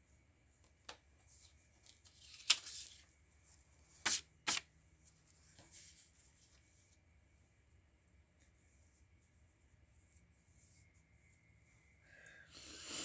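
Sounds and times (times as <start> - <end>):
paper rustling and sliding: 1.2 - 3.1.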